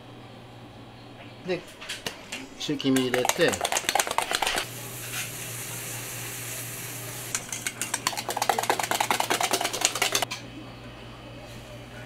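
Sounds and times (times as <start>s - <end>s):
whisk beating eggs in metal bowl: 2.6s - 4.7s, 7.3s - 10.3s
broth boiling in a pot: 2.6s - 10.3s.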